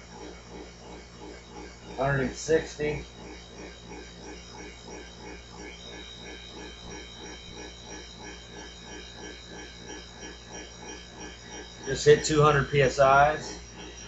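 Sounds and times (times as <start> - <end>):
air compressor running: 0.0 - 14.0.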